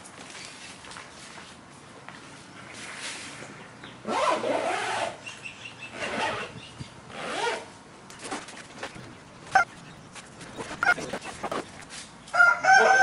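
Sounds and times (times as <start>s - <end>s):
zipper rasping on bag: 8.7s - 11.9s.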